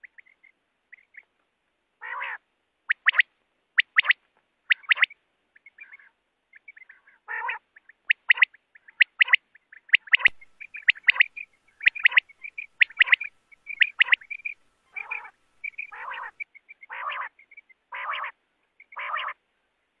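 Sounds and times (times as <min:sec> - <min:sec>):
quail calling high notes: 0:10.0 - 0:17.4, 0:18.0 - 0:19.4
lower rough bird call: 0:10.1 - 0:17.3.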